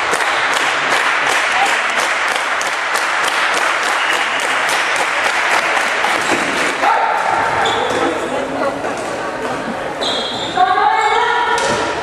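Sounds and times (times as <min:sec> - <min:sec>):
crowd applause: 0:00.0 - 0:06.9.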